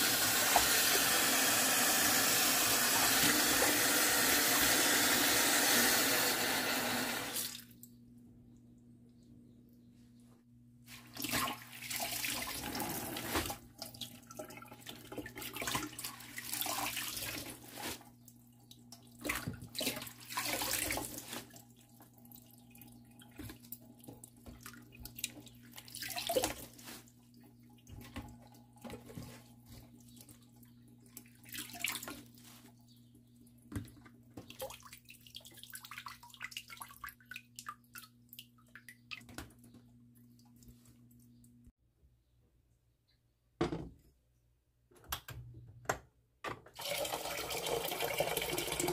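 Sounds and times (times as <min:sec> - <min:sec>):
tap water running into basin: 0:00.0 - 0:07.8, 0:46.7 - 0:48.9
water splashing and sloshing: 0:10.8 - 0:32.8, 0:33.6 - 0:41.3.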